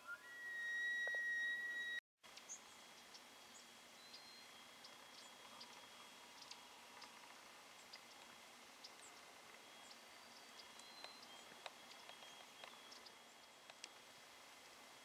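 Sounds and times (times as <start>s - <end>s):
faint high chirps: 0.0s - 6.6s
faint steady hiss: 1.1s - 15.0s.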